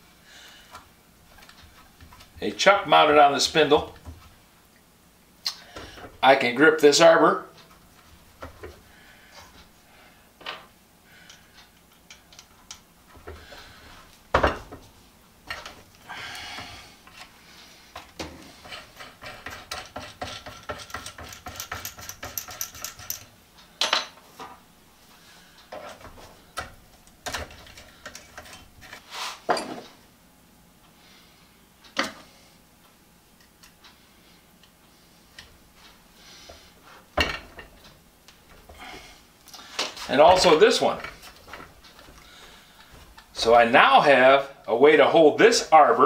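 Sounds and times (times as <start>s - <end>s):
metal parts clinking: 20.5s - 24.1s.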